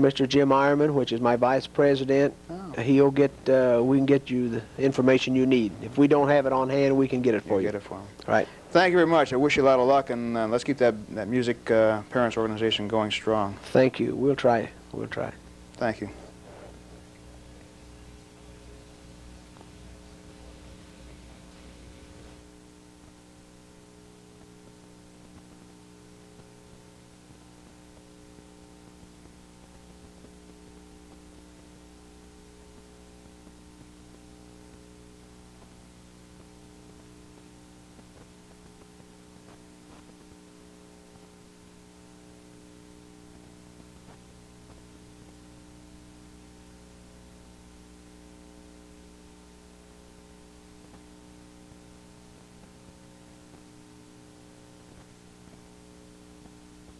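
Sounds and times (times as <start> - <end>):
faint hiss: 0.0 - 25.6
electrical mains hum: 0.0 - 56.9.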